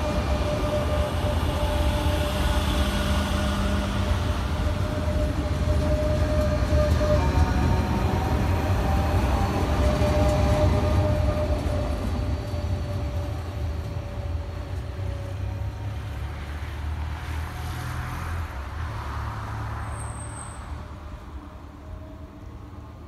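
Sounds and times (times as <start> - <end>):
electric train passing: 0.0 - 23.0.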